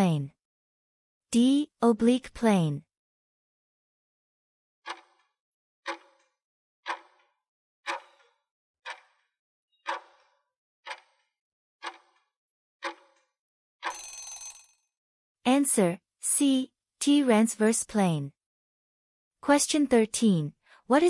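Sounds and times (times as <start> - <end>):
clock-like ticking: 4.9 - 5.2, 5.9 - 6.3, 6.9 - 7.2, 7.9 - 9.2, 9.9 - 10.3, 10.9 - 12.2, 12.8 - 13.0.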